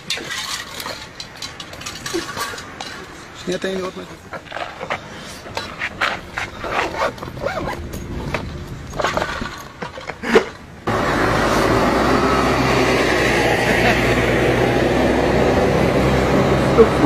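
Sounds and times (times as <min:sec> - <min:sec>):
handling sounds: 0:00.0 - 0:10.8
street traffic noise: 0:00.0 - 0:17.0
van approaching: 0:01.0 - 0:17.0
backpack unzipping: 0:06.4 - 0:08.3.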